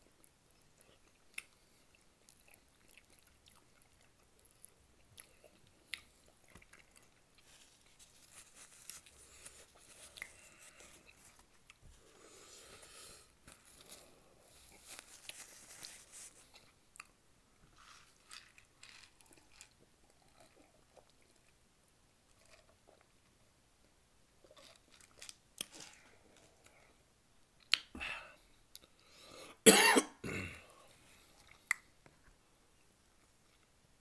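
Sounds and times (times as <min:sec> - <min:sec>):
close-up eating sounds: 0:00.1 - 0:23.6, 0:24.3 - 0:29.4, 0:30.5 - 0:32.2
man coughing: 0:29.6 - 0:30.7
throat-clearing: 0:29.7 - 0:30.6.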